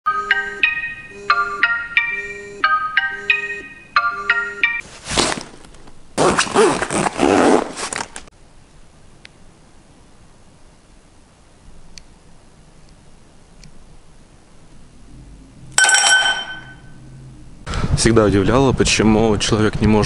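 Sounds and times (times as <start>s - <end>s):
phone alarm chiming melody: 0.1s - 4.8s
bag rustling and handling: 4.8s - 8.3s.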